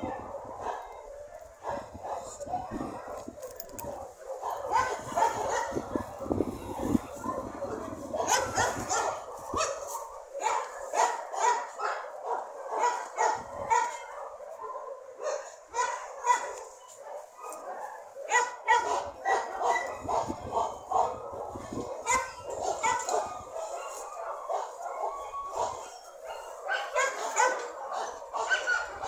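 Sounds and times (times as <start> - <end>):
dog barking and yipping: 0.0 - 29.0.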